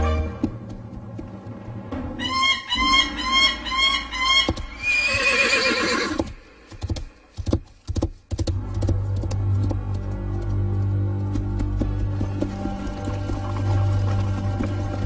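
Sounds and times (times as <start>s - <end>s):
galloping hoofbeats: 0.0s - 2.6s, 4.4s - 15.0s
horse whinnying: 2.3s - 6.3s.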